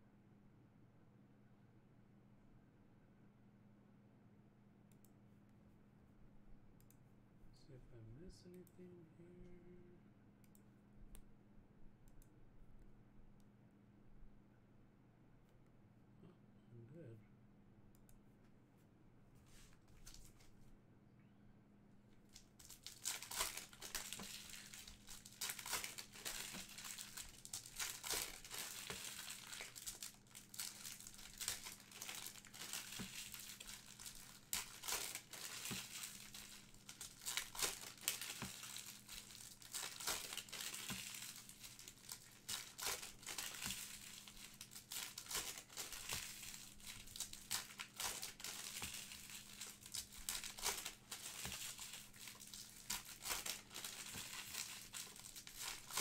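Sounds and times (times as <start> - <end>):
wrappers crinkling: 22.3 - 56.0
card packs tearing: 22.4 - 56.0.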